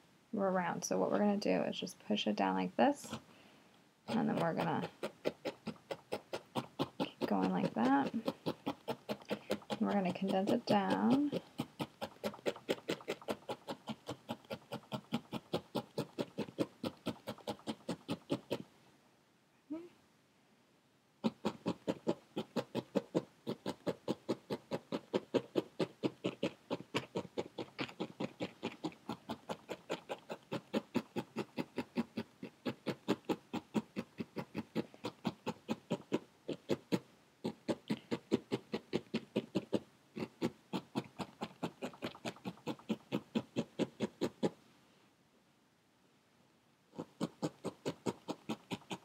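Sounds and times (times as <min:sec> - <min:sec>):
felting needle stabbing wool: 0:04.1 - 0:18.5.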